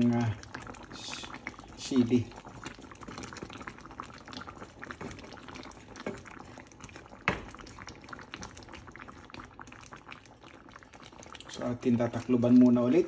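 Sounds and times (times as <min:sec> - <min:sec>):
stew bubbling with pops: 0:00.0 - 0:13.0
wooden spatula stirring: 0:04.3 - 0:07.6.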